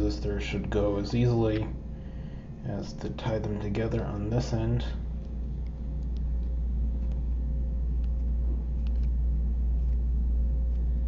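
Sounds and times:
low background hum: 0.0 - 11.0
faint clicks of wire handling: 8.0 - 9.2.

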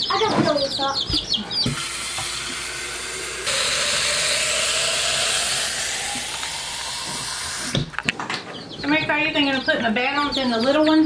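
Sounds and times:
chicks peeping: 0.0 - 11.0
faucet water filling jar: 1.7 - 7.9.

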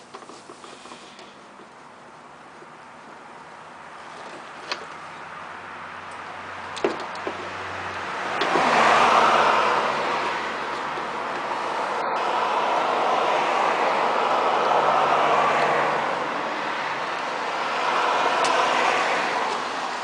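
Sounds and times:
broad rushing noise: 7.5 - 20.0.

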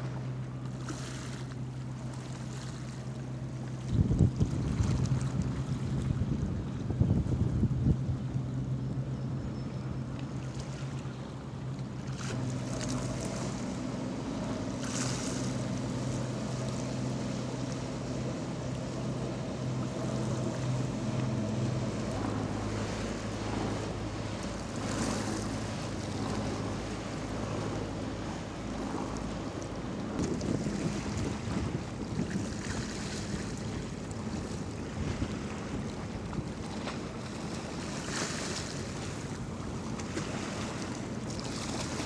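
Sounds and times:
boat engines running: 0.0 - 42.0
wind on microphone: 3.7 - 9.6, 12.2 - 42.0
water wash: 12.0 - 42.0.

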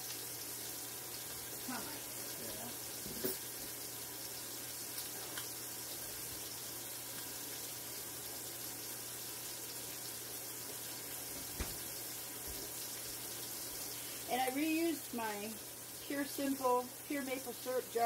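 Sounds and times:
pork ribs sizzling in a pan: 0.0 - 18.0.

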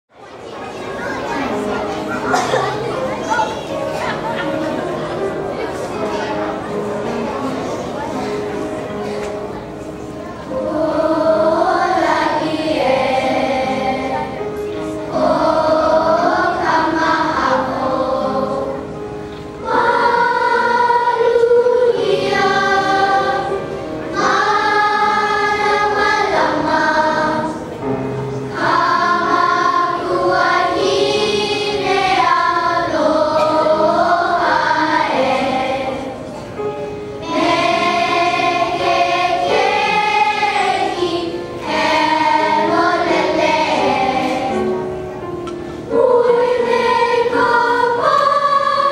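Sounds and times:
children's choir singing: 0.2 - 48.9.

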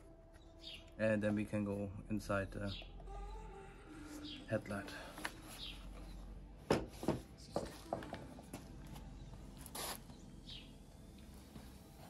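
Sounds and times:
faint bird chirp: 0.3 - 1.2, 2.3 - 6.3, 9.1 - 10.9.

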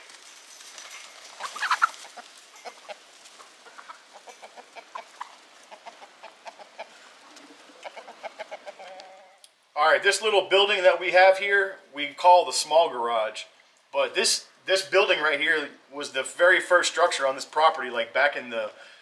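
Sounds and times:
chickens clucking: 1.2 - 9.5.

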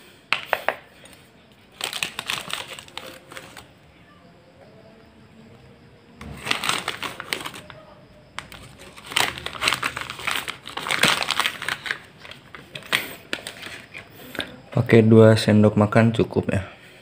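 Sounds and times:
foil sachet crinkling: 1.7 - 3.7, 6.2 - 7.8, 8.4 - 14.4.

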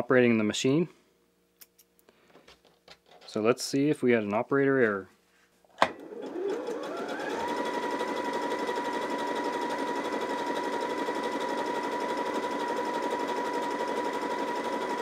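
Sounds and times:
sewing machine stitching: 5.9 - 15.0.

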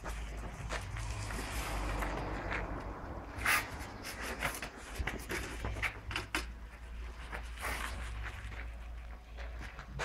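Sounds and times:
footsteps on gravel: 0.0 - 4.0, 6.8 - 10.0.

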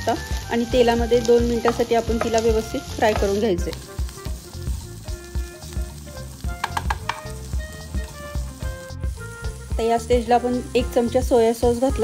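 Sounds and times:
vegetables sizzling in oil: 0.0 - 12.0
wooden spatula scraping a pan: 1.6 - 3.6.

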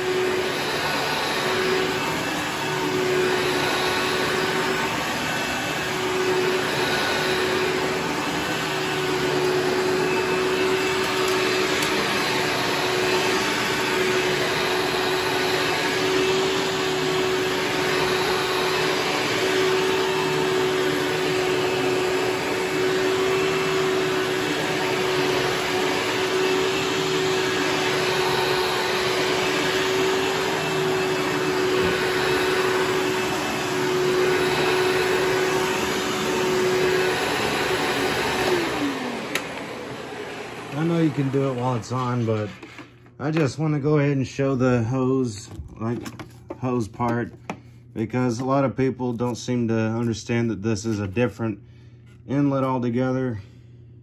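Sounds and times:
upright vacuum running on carpet: 0.0 - 43.4.

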